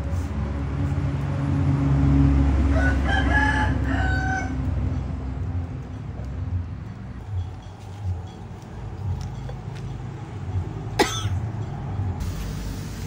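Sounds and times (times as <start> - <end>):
passing vehicle engine rumble: 0.0 - 13.0
rooster crowing: 2.6 - 4.7.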